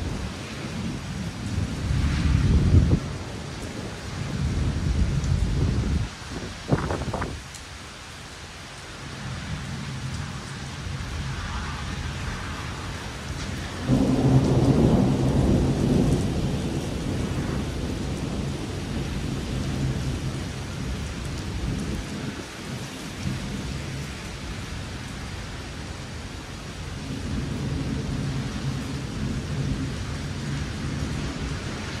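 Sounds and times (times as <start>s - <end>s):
rumble of thunder: 0.0s - 7.4s, 10.9s - 24.1s, 27.0s - 32.0s
rain falling: 0.0s - 32.0s.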